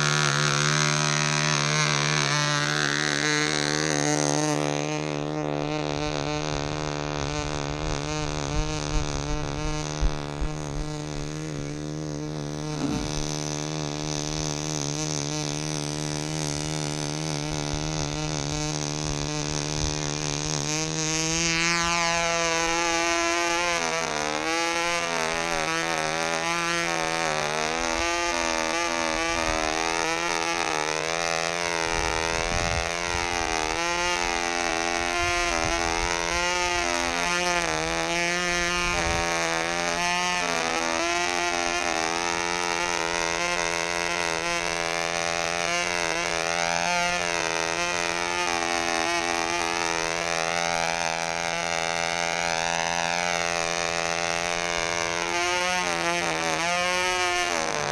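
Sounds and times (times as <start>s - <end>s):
model plane engine buzzing: 0.0s - 57.9s.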